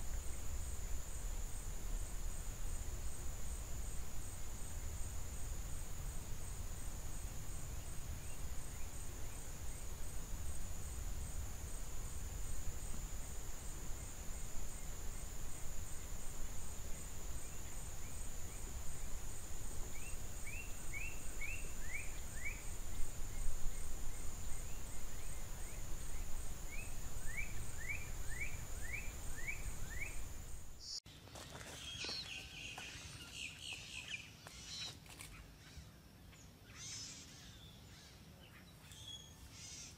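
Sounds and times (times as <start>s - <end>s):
low wind rumble: 0.0s - 30.8s
high-pitched insect drone: 0.0s - 34.9s.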